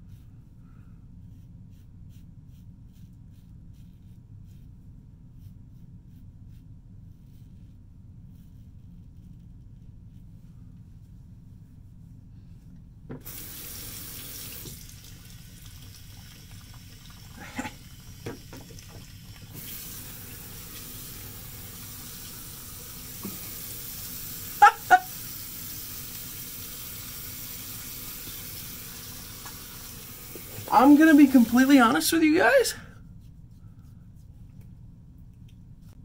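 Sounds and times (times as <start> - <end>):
tap running into sink: 18.1 - 20.0, 23.2 - 23.6, 29.2 - 30.7.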